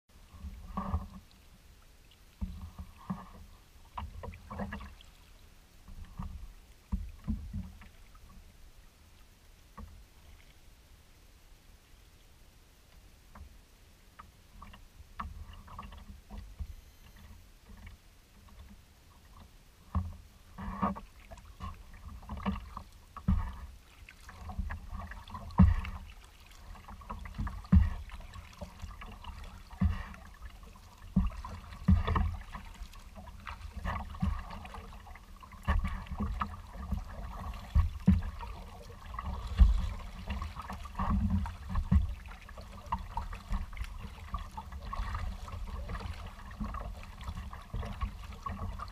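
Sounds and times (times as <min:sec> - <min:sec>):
paddle strokes: 0:00.1 - 0:11.2, 0:11.8 - 0:48.9
small waves splashing against hull: 0:00.1 - 0:48.9.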